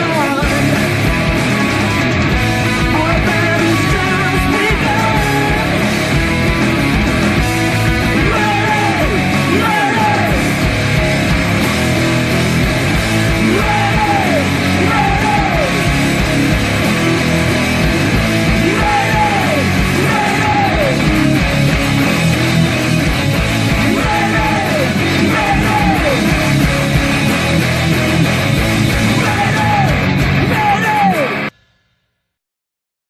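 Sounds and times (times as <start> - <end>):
full band: 0.0 - 31.6
heavy rock electric guitar: 0.0 - 31.6
shouted vocals: 2.8 - 6.0, 7.9 - 11.0, 13.1 - 17.2, 18.0 - 31.5.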